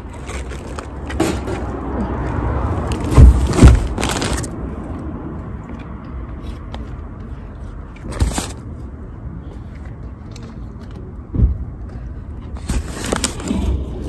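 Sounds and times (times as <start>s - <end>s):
loud dull thumps: 3.1s - 4.1s.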